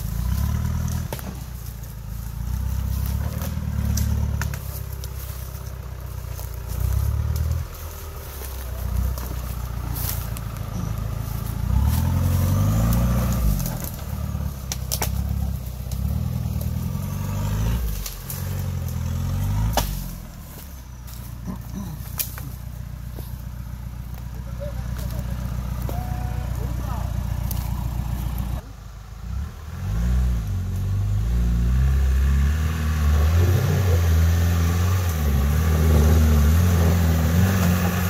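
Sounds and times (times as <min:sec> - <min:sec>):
off-road vehicle engine revving: 0:00.0 - 0:38.0
sharp cracks: 0:12.8 - 0:16.7.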